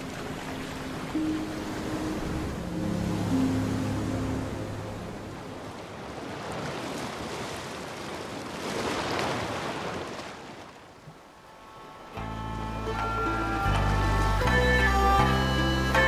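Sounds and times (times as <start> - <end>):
music: 0.0 - 5.3, 11.6 - 16.0
ocean waves washing: 0.0 - 16.0.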